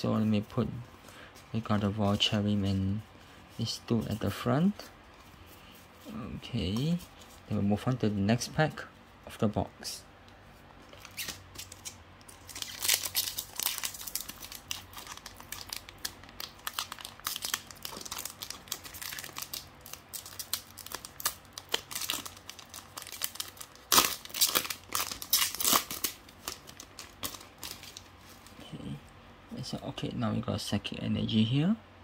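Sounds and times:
foil wrapper crinkling and tearing: 0:11.0 - 0:28.5.

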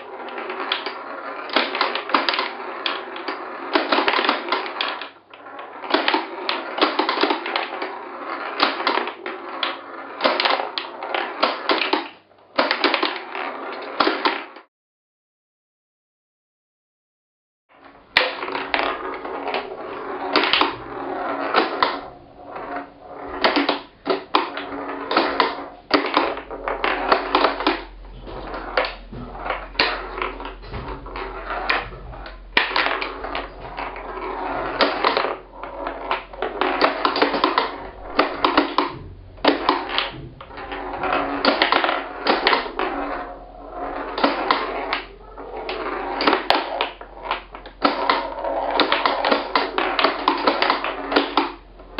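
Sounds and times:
pinball rolling and rattling: 0:00.1 - 0:14.6, 0:18.0 - 0:51.9
pinball flippers clacking: 0:19.3 - 0:43.4.

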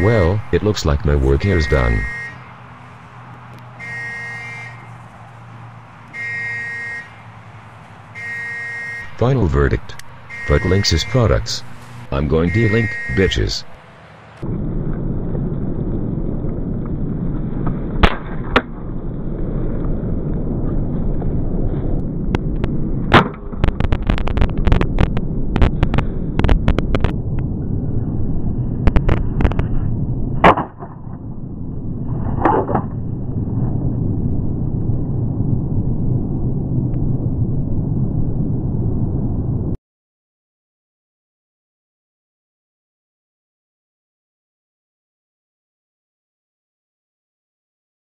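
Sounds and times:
wind rumble on microphone: 0:12.8 - 0:39.8.

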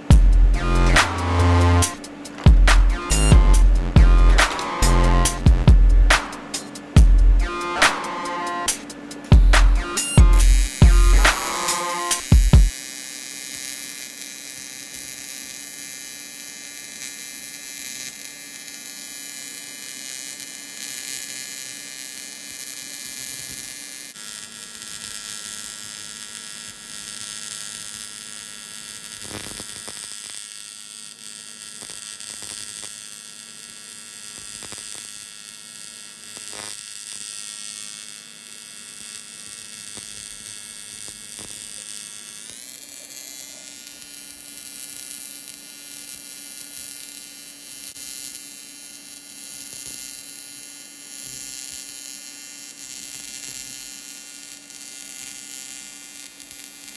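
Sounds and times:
welding arc buzzing: 0:00.0 - 0:56.9.

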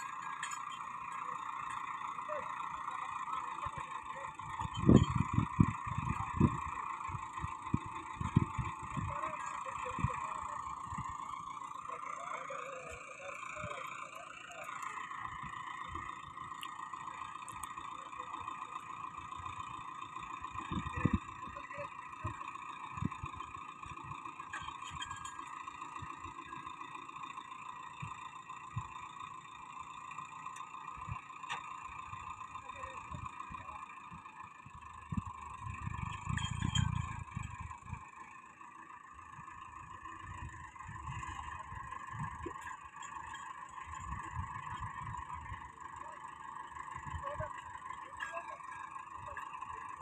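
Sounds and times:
hydraulic whine: 0:00.0 - 0:50.0
tractor engine running: 0:00.0 - 0:50.0
low thumps and rumbles: 0:04.5 - 0:10.2, 0:20.5 - 0:22.4.

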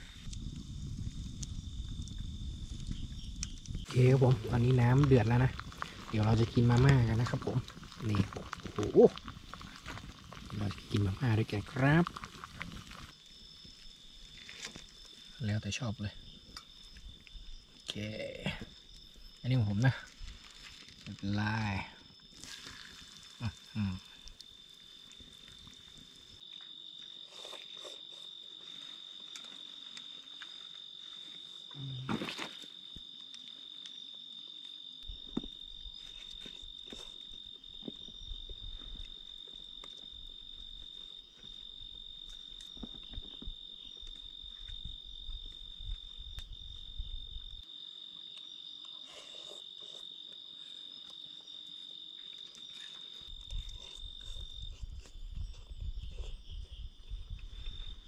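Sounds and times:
insects trilling: 0:00.0 - 0:58.0.

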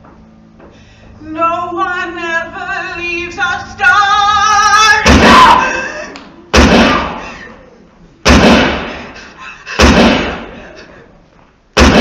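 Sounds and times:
pistol shots with reverberation: 0:06.6 - 0:07.2, 0:08.3 - 0:09.0, 0:09.8 - 0:10.5, 0:11.8 - 0:12.0.

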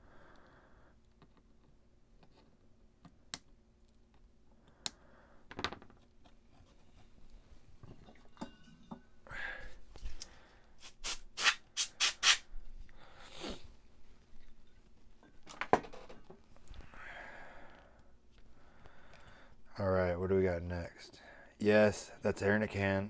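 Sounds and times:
compressed air duster blasts: 0:10.8 - 0:12.4.

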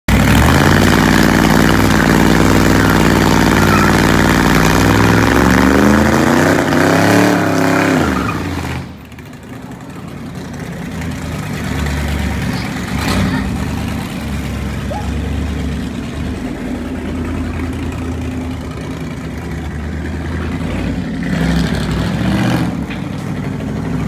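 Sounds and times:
car engine revving hard: 0:00.1 - 0:08.9, 0:20.6 - 0:22.8
distant engine: 0:00.1 - 0:24.0.

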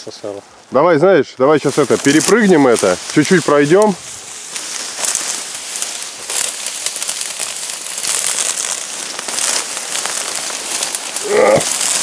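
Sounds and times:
dry reeds rustling and crackling: 0:00.0 - 0:12.0.

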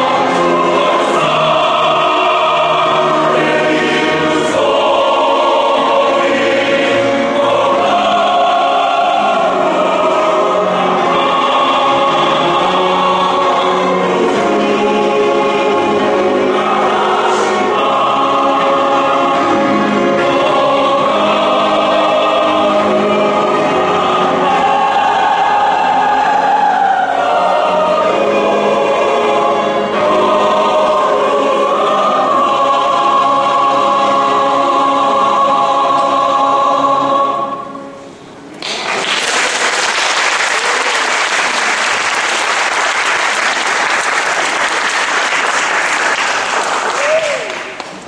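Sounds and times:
mixed choir singing: 0:00.0 - 0:47.1
audience applause: 0:38.6 - 0:48.0.

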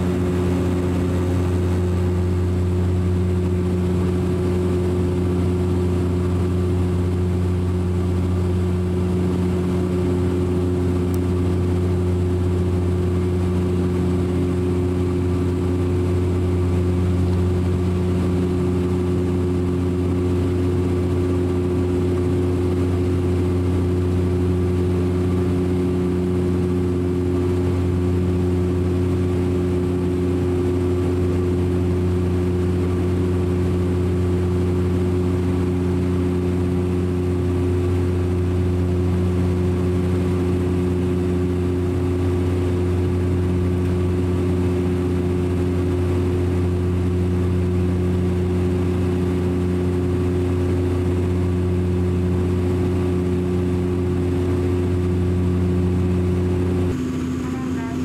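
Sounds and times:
low hum tones: 0:00.0 - 0:58.0
propeller drone: 0:00.0 - 0:58.0.

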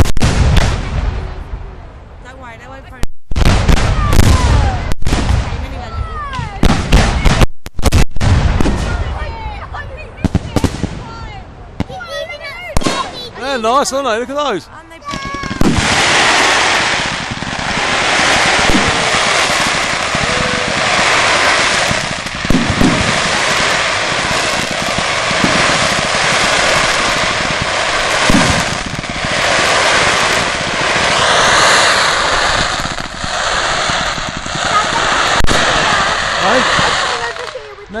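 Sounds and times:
fireworks crackle and hiss: 0:00.0 - 0:38.0
fireworks shells bursting bangs: 0:15.0 - 0:37.7.

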